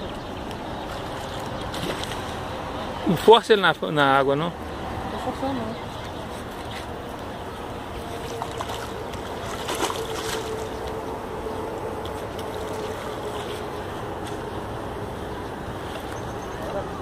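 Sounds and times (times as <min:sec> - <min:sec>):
fish splashing in water: 0:00.8 - 0:02.6, 0:07.9 - 0:11.3.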